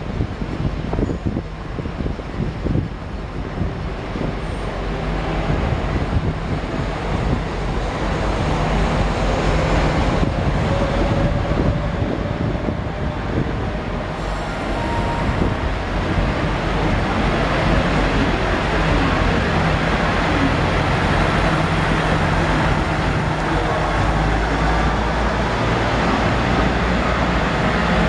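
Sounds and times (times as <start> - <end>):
diesel engines rumbling: 0.0 - 28.0
train wheels rolling on rails: 0.0 - 28.0.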